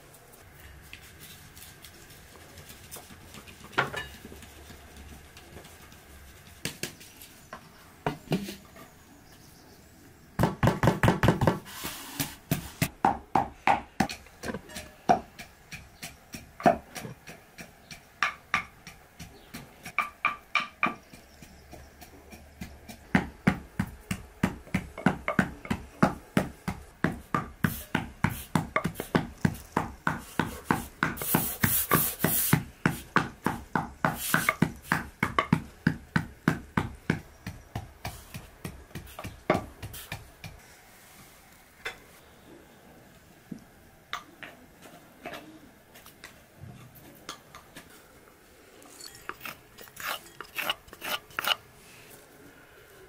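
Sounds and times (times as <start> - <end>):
wooden pestle pounding in mortar: 12.9 - 40.6
faint sifting: 48.5 - 53.0.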